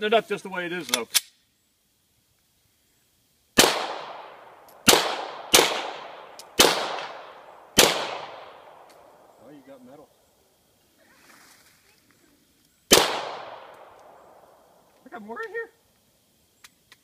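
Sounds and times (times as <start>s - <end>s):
pistol shots echoing: 3.6s - 9.3s, 12.9s - 14.6s.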